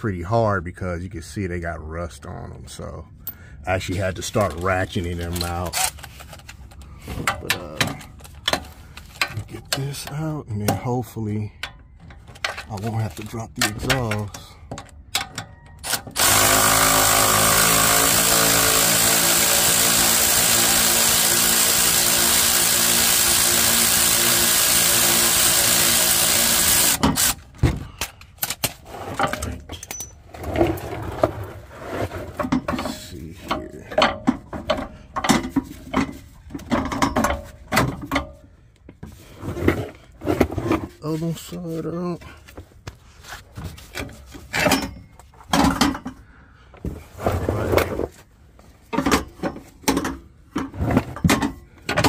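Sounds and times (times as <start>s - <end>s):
power ratchet running: 15.9s - 27.4s.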